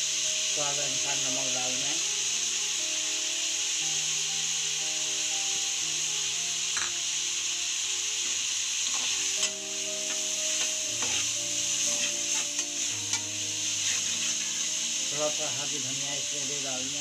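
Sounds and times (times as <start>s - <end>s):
food sizzling in oil: 0.0s - 17.0s
metal spoon scraping and tapping pan: 8.2s - 14.6s.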